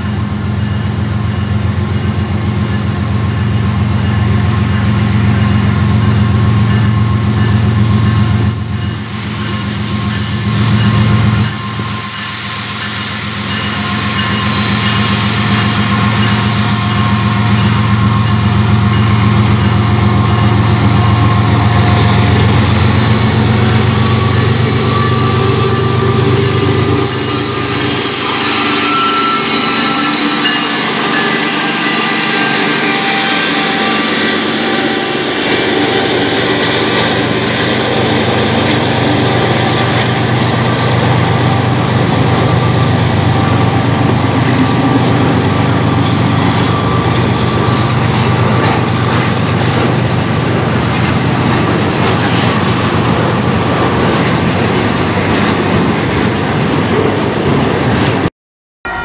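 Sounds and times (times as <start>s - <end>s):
train rushing by: 0.0s - 58.3s
freight cars rumbling on rails: 0.0s - 59.0s
train wheel clicks: 44.4s - 58.2s.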